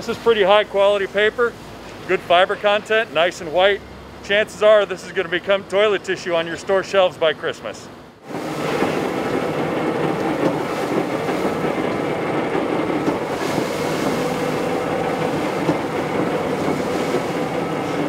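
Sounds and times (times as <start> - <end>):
industrial paper shredder running: 8.2 - 18.0.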